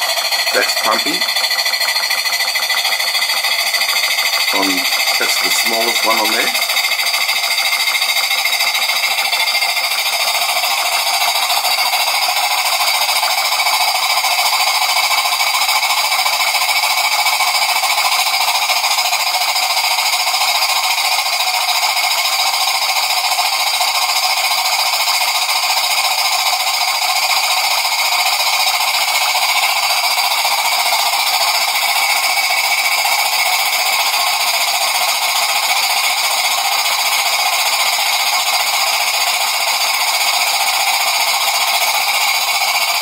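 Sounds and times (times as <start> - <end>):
model steam engine whirring hiss: 0.0 - 43.0.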